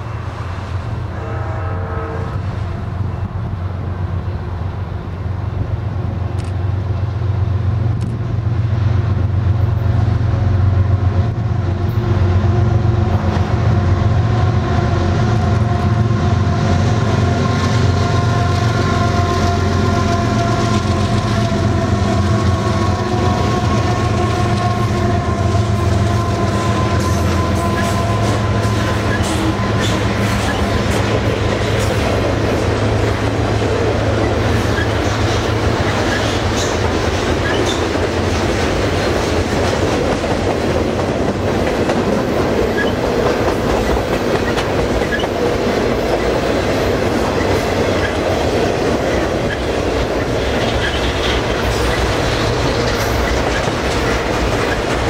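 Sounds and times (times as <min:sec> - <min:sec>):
train horn: 0:00.0 - 0:03.0, 0:12.5 - 0:31.8
locomotive engines rumbling: 0:00.0 - 0:55.0
wheels on rails: 0:11.3 - 0:55.0.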